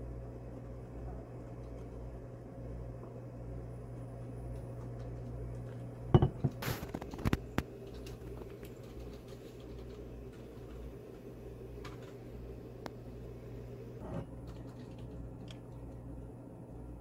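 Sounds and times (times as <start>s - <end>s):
mug knocking on desk: 6.2s - 6.5s.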